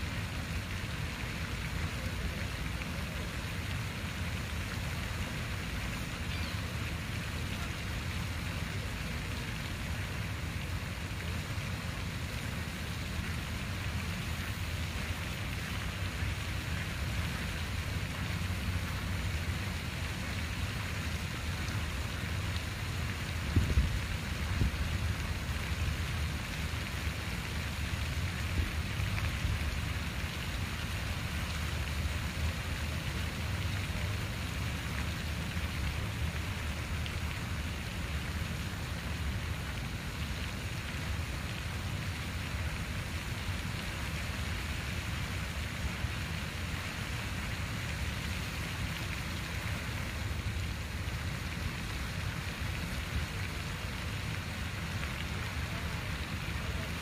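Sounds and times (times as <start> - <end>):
water fountain splashing: 0.0 - 57.0.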